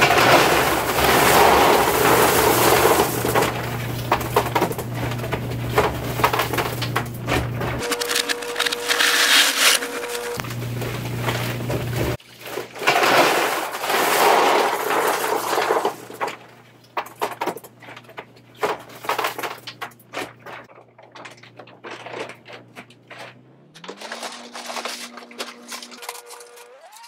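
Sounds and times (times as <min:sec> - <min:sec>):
salt pellets pouring clatter: 0:00.0 - 0:06.9, 0:07.8 - 0:10.4, 0:12.2 - 0:16.3
plastic bag rustling: 0:00.0 - 0:16.5, 0:20.1 - 0:27.0.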